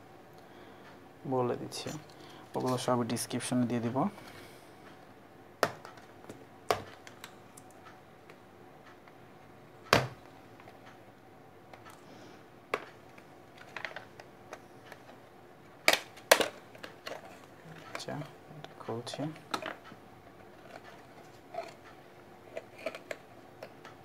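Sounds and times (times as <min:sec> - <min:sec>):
packaging clicks and knocks: 0:05.6 - 0:07.3, 0:12.7 - 0:15.2, 0:15.8 - 0:18.2, 0:22.5 - 0:24.0.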